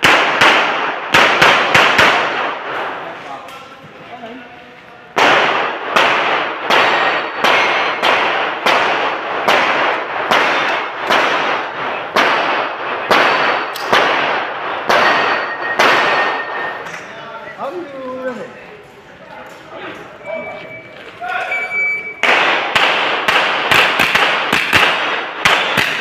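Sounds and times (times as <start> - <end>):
gunshots echoing off concrete: 0.0 - 3.8, 5.1 - 17.1, 22.2 - 26.0.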